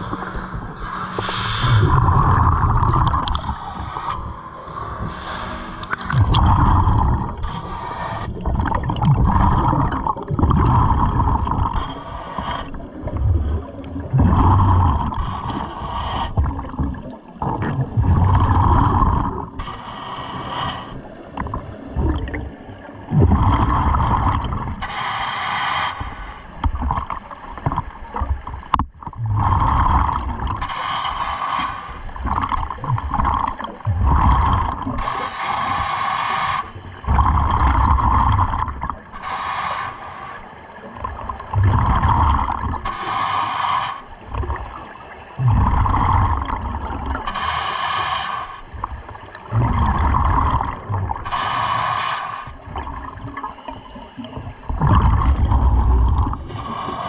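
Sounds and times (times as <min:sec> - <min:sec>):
gurgling exhaled bubbles: 0:00.0 - 0:04.4, 0:05.0 - 0:19.8, 0:21.0 - 0:25.1, 0:26.0 - 0:39.6, 0:40.4 - 0:57.0
regulator hissing inhalation: 0:24.8 - 0:26.6, 0:30.6 - 0:32.2, 0:35.0 - 0:36.9, 0:39.1 - 0:40.6, 0:42.8 - 0:44.2, 0:47.2 - 0:48.8, 0:51.2 - 0:52.8.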